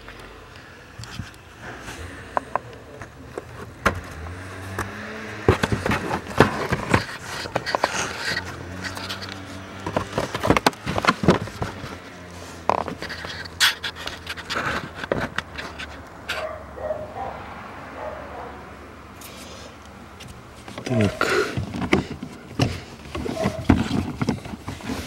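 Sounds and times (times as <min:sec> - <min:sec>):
plastic parts clicking and scraping: 0:01.0 - 0:16.5, 0:19.2 - 0:25.0
camera handling rubbing: 0:05.6 - 0:16.5.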